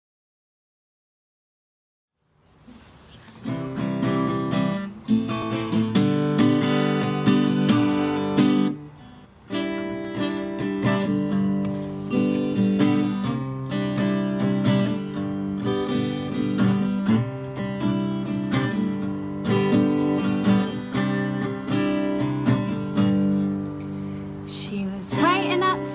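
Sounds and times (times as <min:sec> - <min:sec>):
acoustic guitar strumming: 0:03.3 - 0:25.9.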